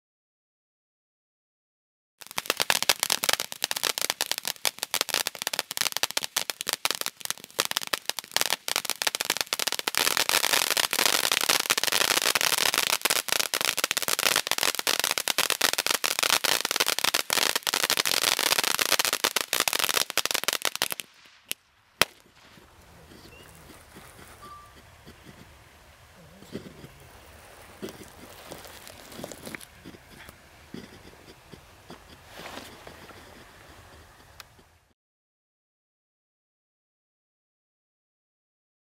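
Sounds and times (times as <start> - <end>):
sharp firework cracks: 2.2 - 24.4
ground firework crackling: 2.2 - 34.9.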